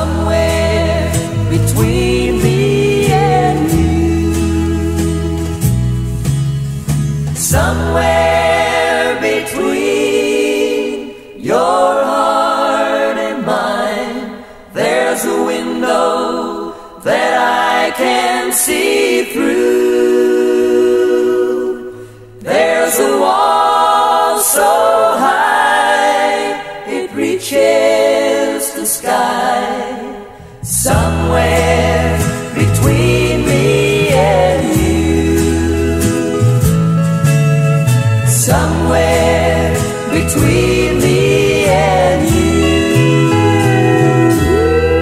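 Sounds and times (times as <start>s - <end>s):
voices singing close harmony: 0.0s - 5.7s, 7.4s - 37.1s, 38.2s - 45.0s
pop band with bass: 0.0s - 10.8s, 30.5s - 45.0s.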